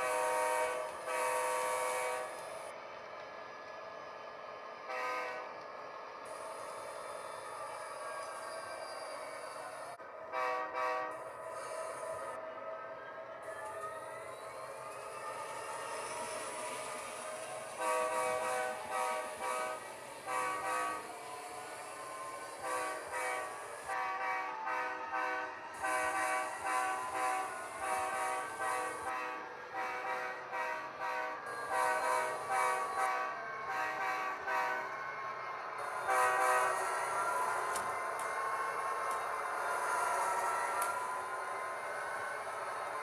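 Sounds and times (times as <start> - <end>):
model train horn blasts: 0.0 - 2.5, 4.9 - 5.5, 10.3 - 11.2, 17.8 - 21.1, 22.6 - 35.0, 36.0 - 36.8
model train running on track: 0.0 - 43.0.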